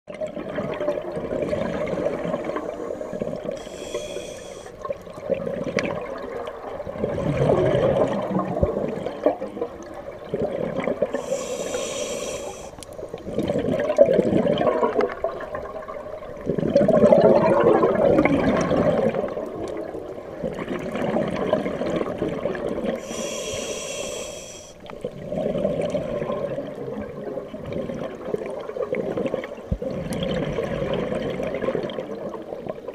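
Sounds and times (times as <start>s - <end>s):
bubbling gurgling exhales: 0.2s - 32.9s
regulator hissing inhales: 2.6s - 4.8s, 11.2s - 13.0s, 23.0s - 24.9s.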